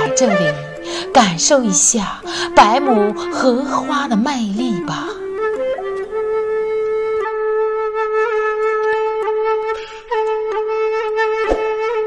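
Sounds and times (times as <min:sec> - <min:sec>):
flute-like melody: 0:00.0 - 0:12.0.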